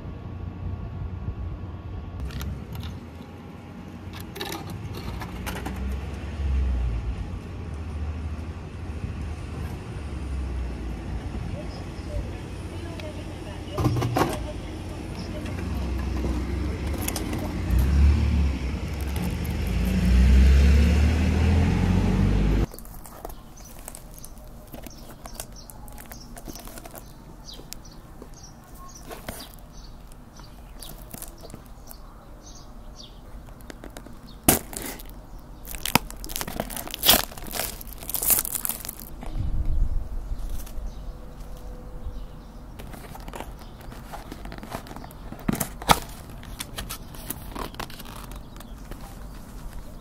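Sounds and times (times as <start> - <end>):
cardboard and plastic crinkling: 18.8 - 19.9, 22.7 - 32.1, 33.4 - 39.4, 42.8 - 50.0
cardboard flap snapping: 33.5 - 39.1, 42.8 - 49.0.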